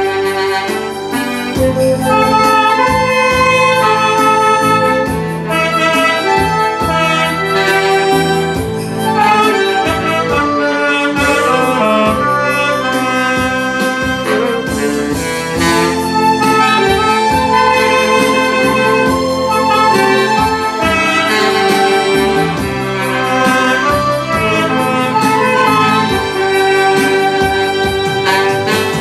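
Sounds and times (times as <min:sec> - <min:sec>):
backing track with beat: 0:00.0 - 0:29.0
saxophone melody: 0:00.0 - 0:29.0.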